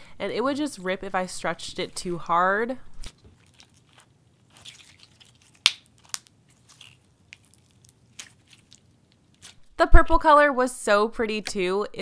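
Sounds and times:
slime popping: 0:03.2 - 0:09.6
slime sticky clicks and crackles: 0:03.4 - 0:09.6.

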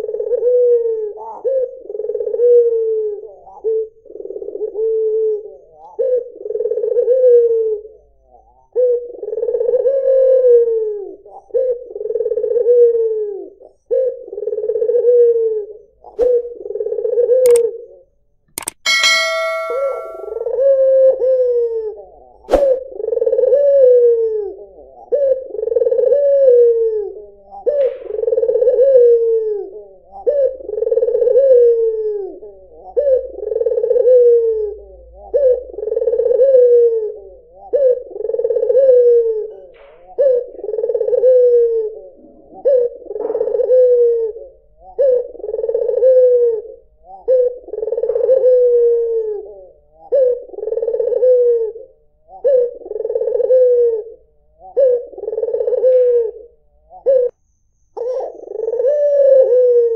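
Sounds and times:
dove cooing: 0:00.0 - 0:07.9, 0:08.6 - 0:15.9, 0:16.5 - 0:17.6, 0:23.0 - 0:57.3, 0:58.0 - 0:59.9.

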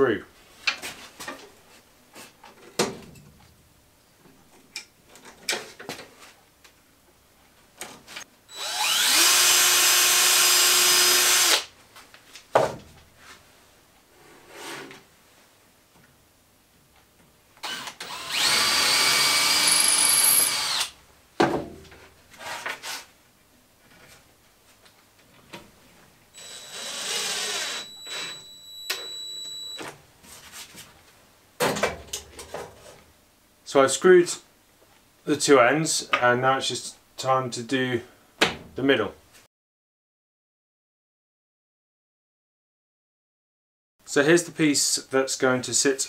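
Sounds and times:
cordless drill driving screws: 0:08.5 - 0:11.7, 0:17.6 - 0:21.0, 0:26.4 - 0:29.1
handling knocks and clunks: 0:12.5 - 0:13.0, 0:21.4 - 0:22.1, 0:31.6 - 0:33.0.

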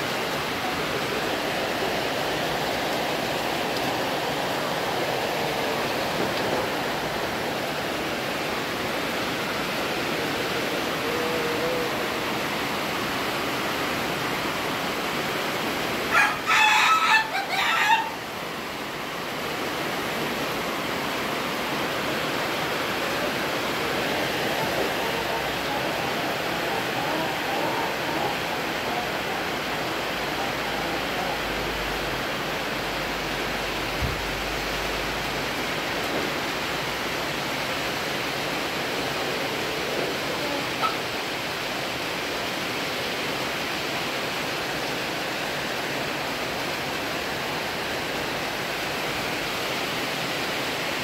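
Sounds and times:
rooster crowing: 0:16.1 - 0:18.2, 0:24.6 - 0:29.6.

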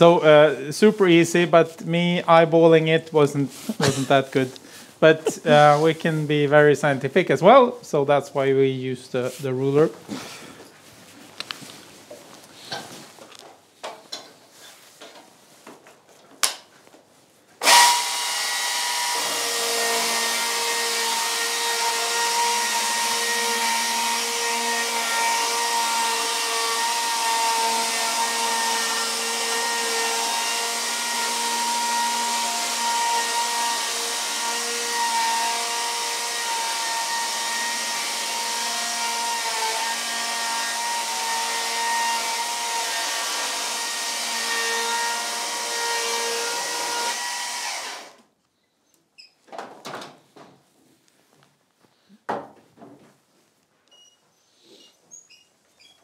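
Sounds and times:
electric chainsaw cutting wood: 0:17.6 - 0:48.2.

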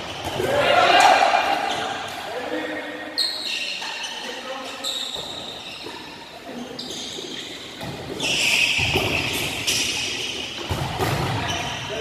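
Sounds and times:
volleyballs smacking: 0:07.8 - 0:11.6.

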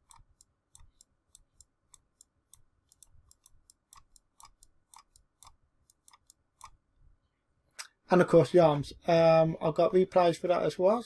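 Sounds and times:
computer mouse clicks: 0:00.0 - 0:06.8.

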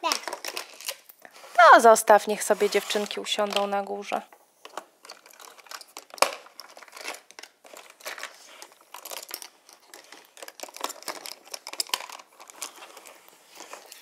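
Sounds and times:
plastic toy pieces clicking: 0:00.0 - 0:01.1, 0:04.7 - 0:13.1.

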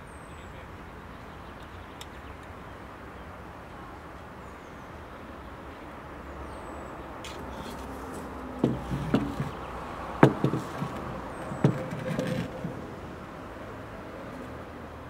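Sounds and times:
distant traffic hum: 0:00.0 - 0:15.0
plate knocking on wooden floor: 0:08.6 - 0:09.6, 0:10.2 - 0:12.8.

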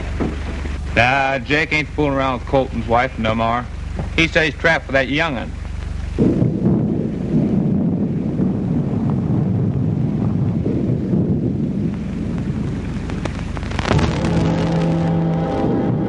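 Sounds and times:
wind: 0:00.0 - 0:16.0
low rumbling thunder: 0:06.0 - 0:16.0
sharp thunderclap: 0:06.2 - 0:16.0
music sustained chord: 0:13.9 - 0:16.0.

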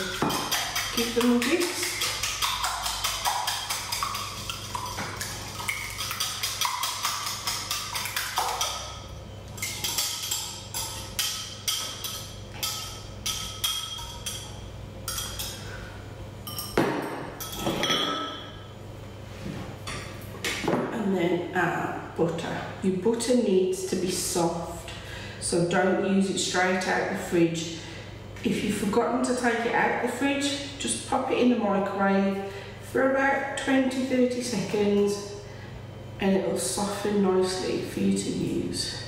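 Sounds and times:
whisk clicking against bowl: 0:00.0 - 0:09.0
bowls and utensils knocking: 0:00.0 - 0:15.6, 0:16.5 - 0:18.6.

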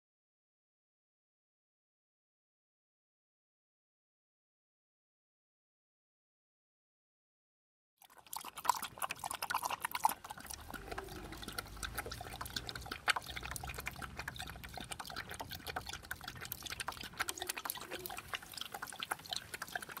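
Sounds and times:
dog lapping water: 0:08.0 - 0:20.0.

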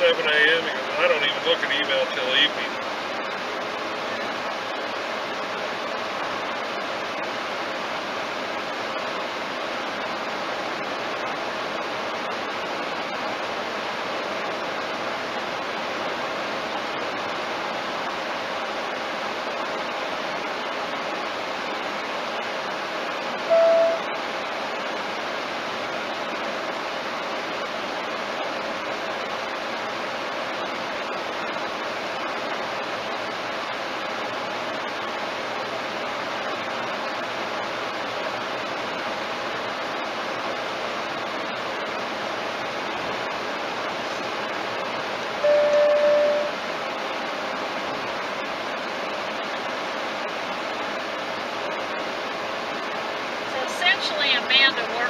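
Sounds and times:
car cabin road and wind noise: 0:00.0 - 0:55.0
short beep: 0:23.5 - 0:24.1, 0:45.4 - 0:46.6.

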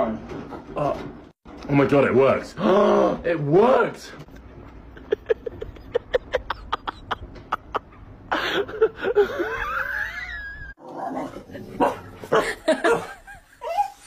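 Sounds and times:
person shrieking laughter: 0:08.3 - 0:10.8.

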